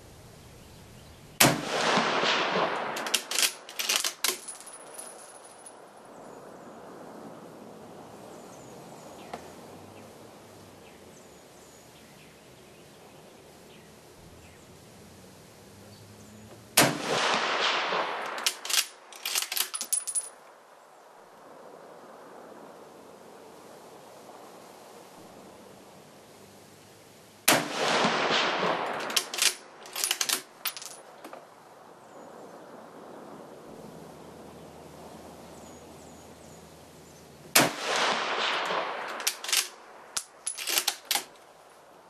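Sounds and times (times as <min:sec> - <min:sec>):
rifle shots echoing: 0:01.4 - 0:05.0, 0:16.8 - 0:20.2, 0:27.5 - 0:31.0, 0:37.5 - 0:41.3
rifle bolt clicks: 0:18.3 - 0:19.9, 0:29.0 - 0:30.5, 0:39.1 - 0:41.4.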